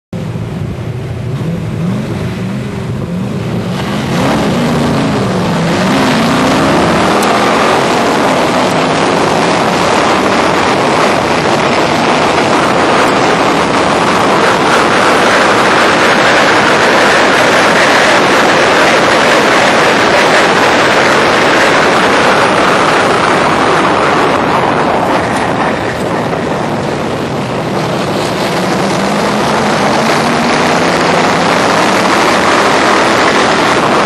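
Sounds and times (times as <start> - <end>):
race car engine revving: 0.2 - 34.0
wind rushing: 0.4 - 34.0.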